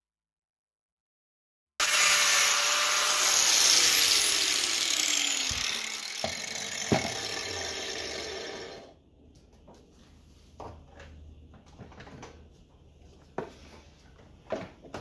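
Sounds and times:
angle grinder whining: 1.8 - 9.0.

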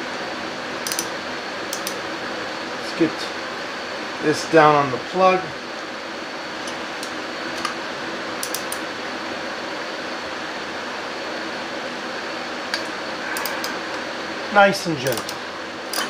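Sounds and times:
mechanical hum: 0.0 - 16.0
ratchet clicking: 0.9 - 1.1, 8.4 - 8.8, 15.1 - 16.0.

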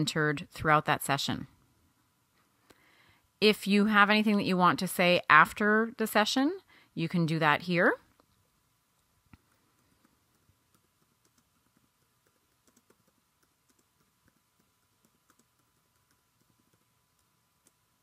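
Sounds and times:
faint keyboard typing: 8.0 - 18.0.

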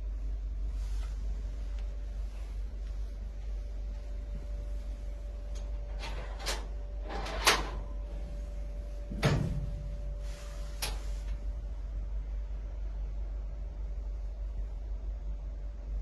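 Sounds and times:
faint steady hum: 0.0 - 16.0
metal cage door clicks and clanks: 5.6 - 7.8, 9.2 - 9.8.

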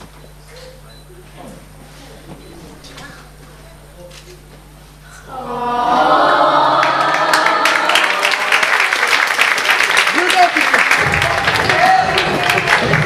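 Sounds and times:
crowd cheering and shouting: 5.3 - 9.0, 11.0 - 13.0
crowd clapping: 6.0 - 13.0.

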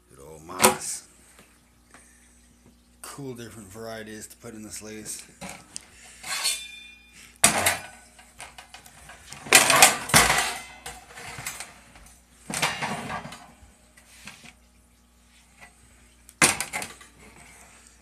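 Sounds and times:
metal clattering and rattling: 7.4 - 11.9, 12.5 - 13.6.

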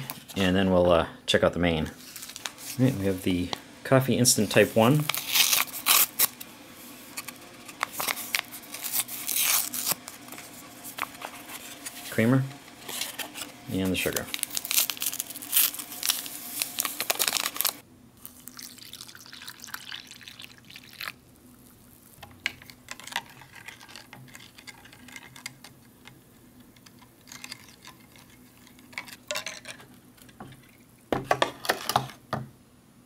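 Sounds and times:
paper packet crinkling: 4.4 - 25.4.

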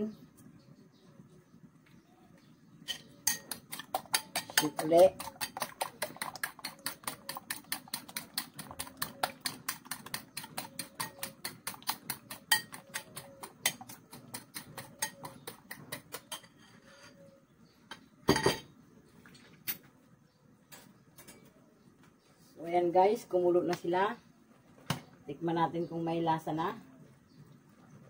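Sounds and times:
fork beating eggs in a bowl: 2.9 - 16.6.

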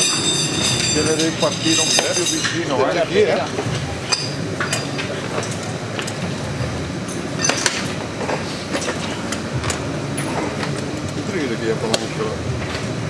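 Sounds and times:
tire levers clinking on wheel rim: 0.0 - 2.8, 7.0 - 11.2.

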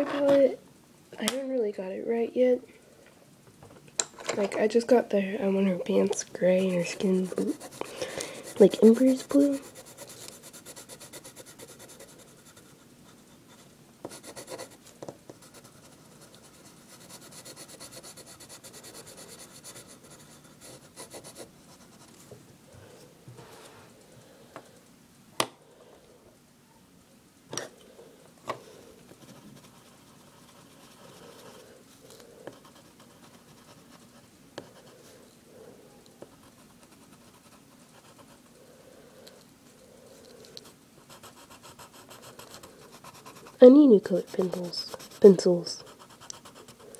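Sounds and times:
pencil scratching on paper: 6.4 - 22.2, 29.2 - 31.7, 32.5 - 35.1, 36.2 - 38.5, 40.6 - 46.9.

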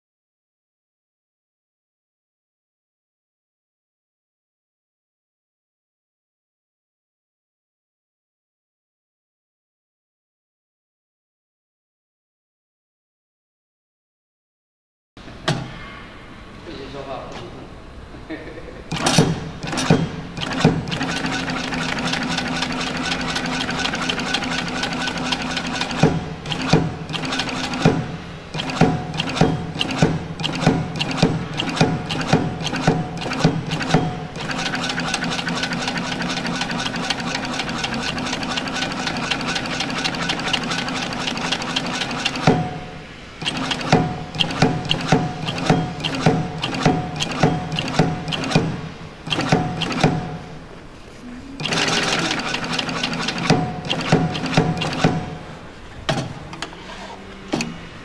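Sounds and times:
sewing machine stitching: 18.9 - 50.5, 51.6 - 55.5.

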